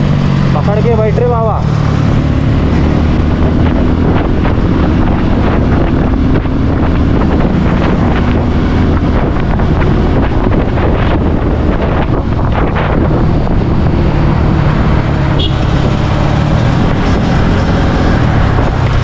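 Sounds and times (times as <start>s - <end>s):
motorcycle engine hum: 0.0s - 19.0s
wind rushing over microphone: 0.0s - 19.0s.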